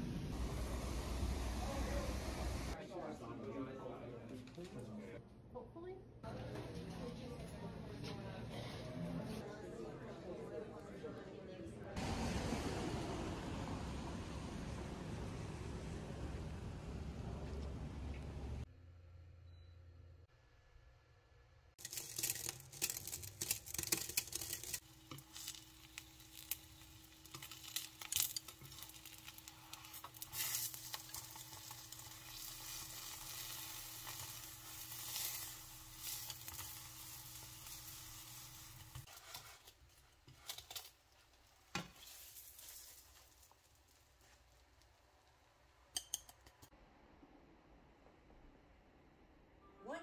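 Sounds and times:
pancake sizzling in a frying pan: 21.8s - 44.8s
chopsticks clicking against pan: 46.0s - 46.6s.

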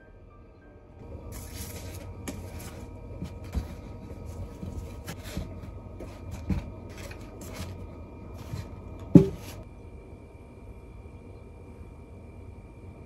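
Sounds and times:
containers knocking on counter: 9.1s - 9.5s.

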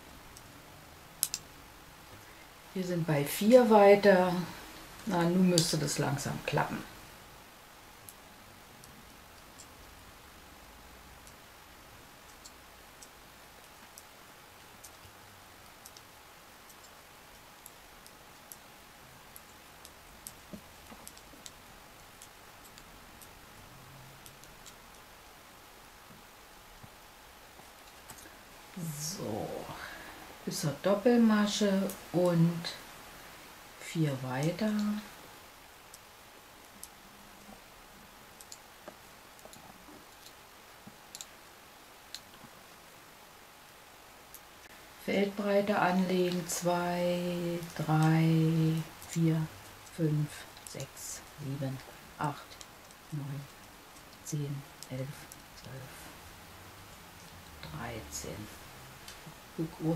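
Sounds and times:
knitting needles clicking: 1.2s - 1.5s, 8.8s - 10.0s, 12.2s - 25.1s, 38.4s - 41.4s, 47.6s - 55.8s.

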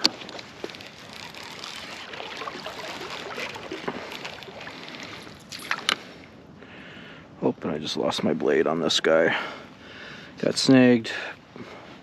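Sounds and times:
water trickling and sloshing: 0.0s - 6.4s.

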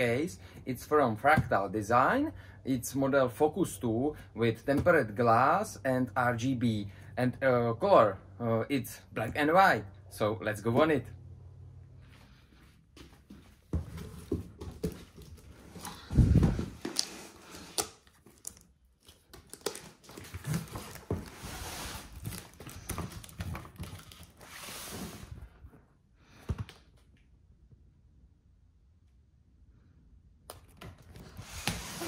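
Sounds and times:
packaging crinkling and tearing: 16.9s - 21.4s, 22.0s - 24.6s.

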